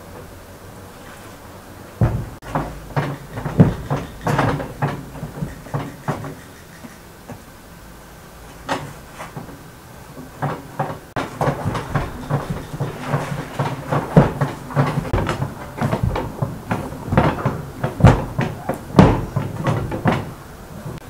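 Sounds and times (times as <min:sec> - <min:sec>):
dough kneaded in metal bowl: 0:02.0 - 0:06.3, 0:10.2 - 0:21.0.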